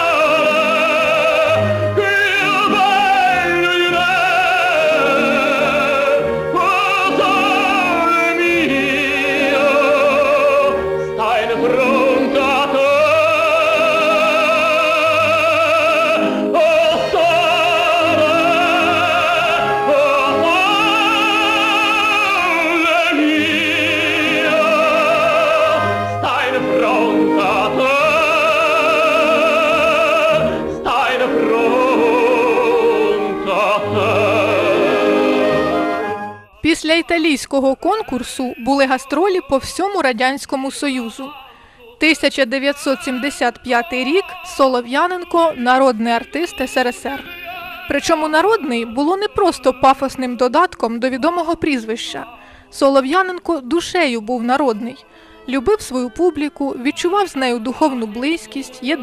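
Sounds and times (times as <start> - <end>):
instrumental accompaniment: 0.0 - 39.8
male operatic tenor singing: 0.0 - 53.4, 54.7 - 59.0.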